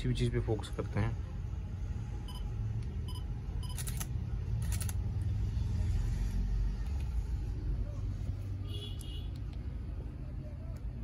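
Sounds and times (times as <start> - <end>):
camera shutter clacks: 3.6 - 5.0.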